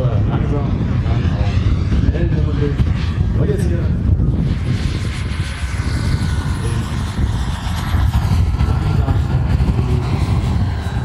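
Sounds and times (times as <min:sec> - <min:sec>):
high turbine whine: 0:00.0 - 0:11.0
propeller rumble: 0:00.0 - 0:11.0.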